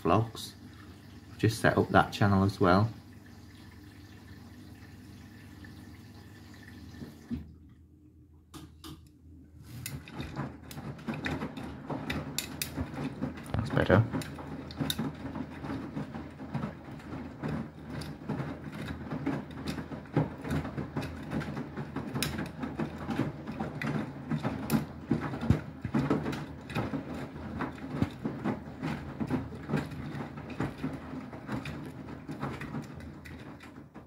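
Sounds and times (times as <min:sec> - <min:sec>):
washing machine drum tumbling: 0:00.0 - 0:07.7, 0:09.6 - 0:34.0
clatter of clicks and knocks: 0:09.8 - 0:34.0.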